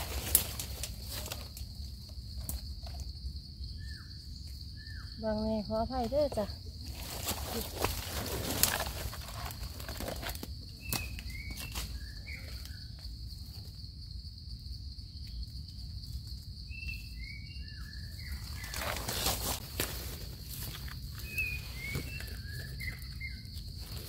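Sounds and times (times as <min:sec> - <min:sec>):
rustling in leaf litter: 0:00.0 - 0:01.8, 0:05.9 - 0:12.5, 0:18.3 - 0:24.0.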